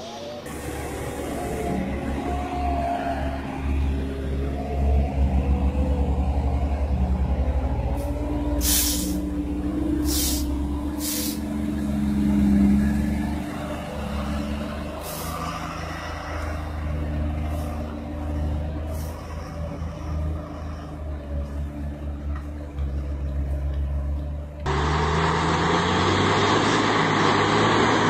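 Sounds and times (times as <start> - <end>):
heavy diesel engines under load: 0.0 - 28.0
air brake hisses: 8.0 - 9.3, 10.0 - 11.5, 15.0 - 15.4.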